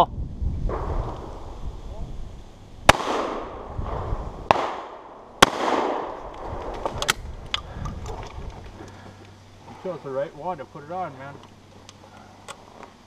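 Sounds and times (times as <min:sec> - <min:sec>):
shotgun shots with echo: 0:02.9 - 0:03.6, 0:04.5 - 0:06.2.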